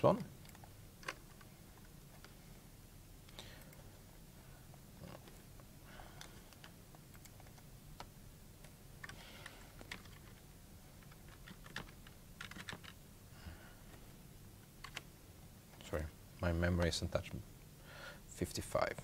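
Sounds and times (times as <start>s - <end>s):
faint computer keyboard keystrokes: 0.1s - 2.4s, 5.2s - 10.4s, 11.0s - 13.0s, 14.7s - 15.1s.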